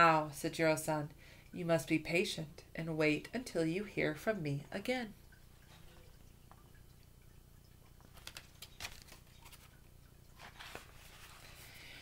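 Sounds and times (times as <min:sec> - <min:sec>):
book rustling and page turning: 0:08.0 - 0:11.8.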